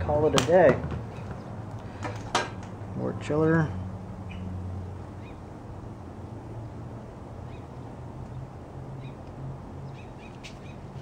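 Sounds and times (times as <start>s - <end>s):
propane burner rumbling: 0.0s - 4.2s.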